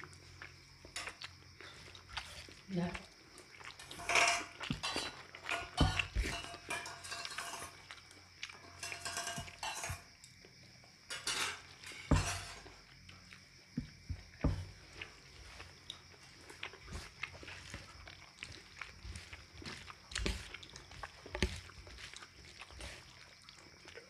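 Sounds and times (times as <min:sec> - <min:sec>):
plate and utensils clinking: 0:03.8 - 0:07.8, 0:08.6 - 0:10.1, 0:11.1 - 0:12.7.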